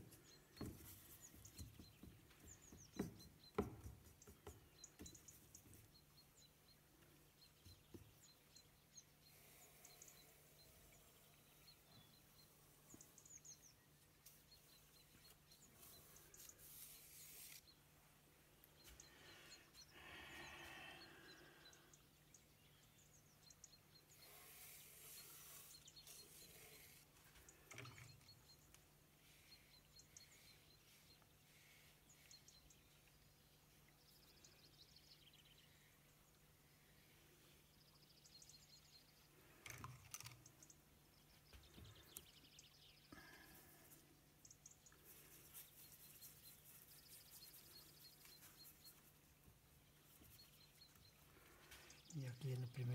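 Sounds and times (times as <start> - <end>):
soft taps and knocks: 0.5 - 5.9
brush swishing on card: 15.9 - 17.6.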